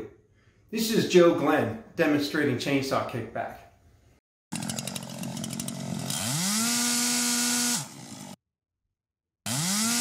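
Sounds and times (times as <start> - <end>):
chainsaw revving at full throttle: 4.5 - 8.4, 9.4 - 10.0.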